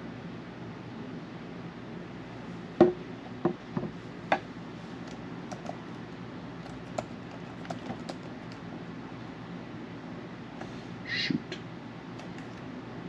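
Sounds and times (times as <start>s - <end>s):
low background hum: 0.0s - 13.0s
keyboard typing: 5.0s - 5.8s, 6.6s - 8.6s, 12.2s - 12.7s.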